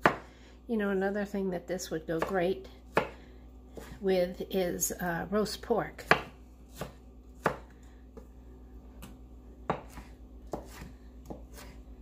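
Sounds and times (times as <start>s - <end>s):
knife chopping on wooden board: 0.0s - 0.3s, 2.2s - 3.2s, 6.0s - 8.3s, 9.0s - 11.8s
steady low hum: 0.0s - 12.0s.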